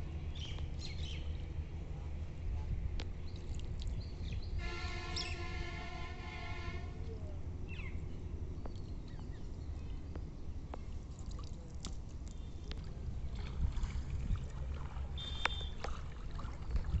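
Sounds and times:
water sloshing around wading legs: 3.2s - 4.1s, 8.7s - 17.0s.

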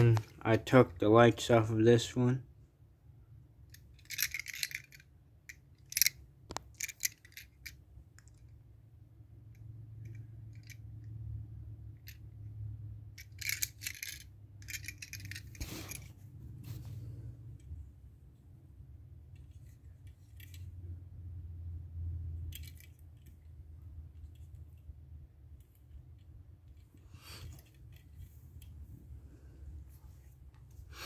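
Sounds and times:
metal toy cars clinking: 3.7s - 8.5s, 9.6s - 11.2s, 11.9s - 16.2s, 19.3s - 20.8s, 22.3s - 24.9s.

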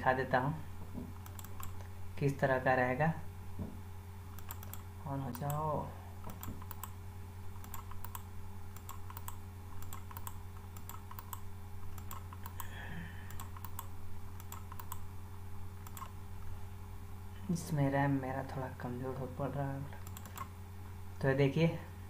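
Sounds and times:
low electrical hum: 0.0s - 22.0s
computer keys clicking: 1.2s - 1.8s, 4.3s - 5.6s, 6.2s - 7.0s, 7.6s - 15.0s, 15.8s - 16.2s, 20.0s - 20.5s.

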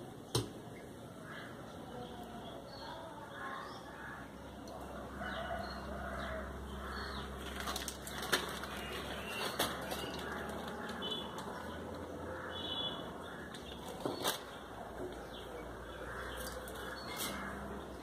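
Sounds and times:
plastic bag rustling and crinkling: 7.4s - 11.6s.

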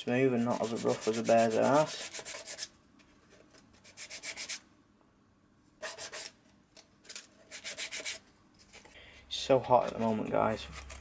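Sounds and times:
sandpaper rubbing wood: 0.3s - 2.7s, 4.0s - 4.6s, 5.8s - 6.3s, 7.5s - 8.2s.

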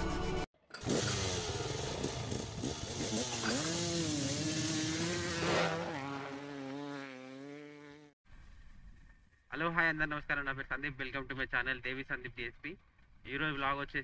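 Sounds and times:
dirt bike engine revving: 0.6s - 8.2s.

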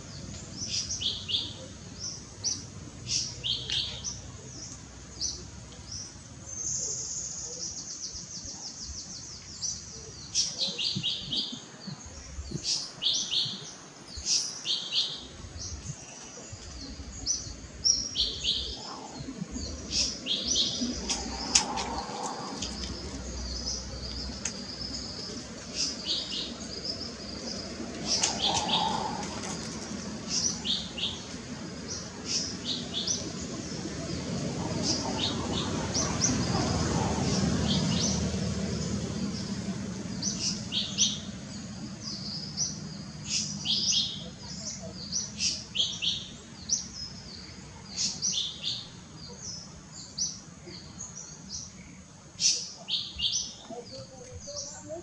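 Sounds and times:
small birds chirping: 0.0s - 55.0s
low background rumble: 15.3s - 45.4s.

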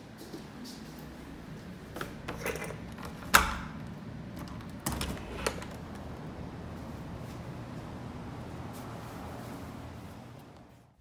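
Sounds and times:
door lock clicks: 2.3s - 3.8s.

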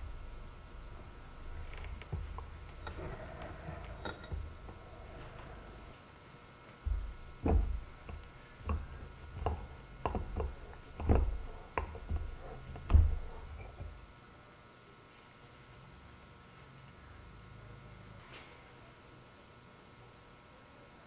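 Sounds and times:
dull knocks on injection mould: 6.9s - 14.0s.

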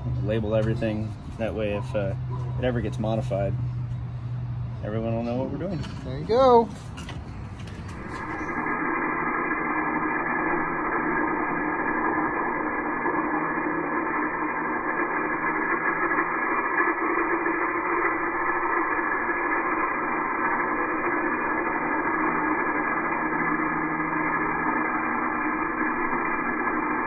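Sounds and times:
angle grinder cutting metal: 7.9s - 27.0s.

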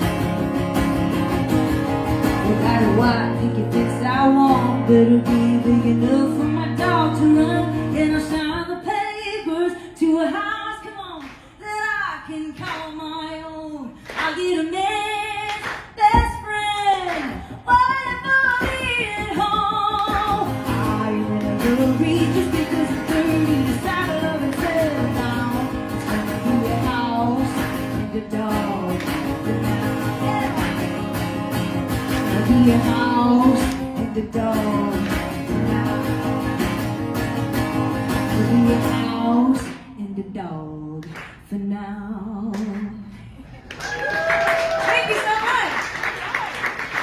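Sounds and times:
acoustic guitar strumming: 0.0s - 8.8s, 17.4s - 39.9s
woman singing: 2.0s - 43.4s.

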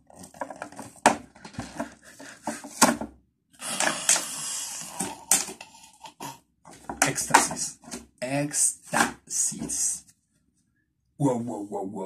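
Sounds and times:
plastic and cardboard crackling: 0.0s - 3.1s.

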